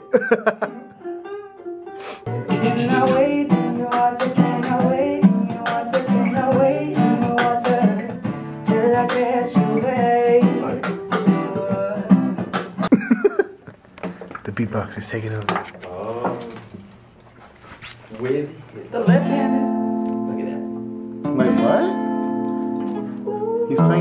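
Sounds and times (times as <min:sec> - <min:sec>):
ukulele strumming: 0:00.0 - 0:08.0, 0:19.0 - 0:23.2
acoustic guitar strumming: 0:00.0 - 0:12.9, 0:19.0 - 0:24.0
man singing: 0:02.3 - 0:12.8, 0:21.4 - 0:22.2, 0:23.2 - 0:24.0.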